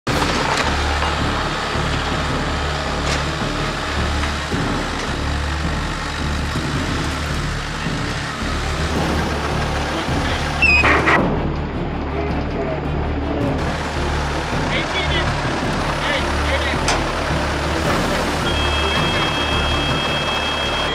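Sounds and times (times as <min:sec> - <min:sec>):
loader diesel engine running: 0:00.0 - 0:20.9
metal clanks: 0:16.5 - 0:18.4.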